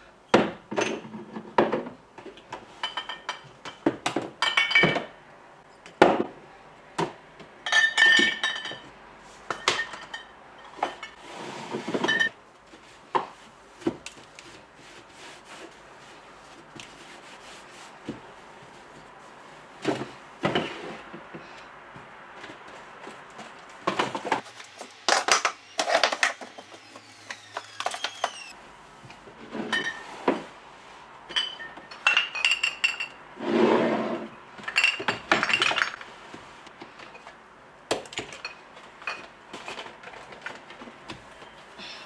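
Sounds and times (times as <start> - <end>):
glass bottles and jars clinking: 2.8 - 3.8, 4.4 - 5.1, 7.6 - 8.9, 9.5 - 11.2, 11.9 - 12.4, 29.6 - 30.1, 31.3 - 33.2, 34.7 - 36.0, 38.2 - 39.8.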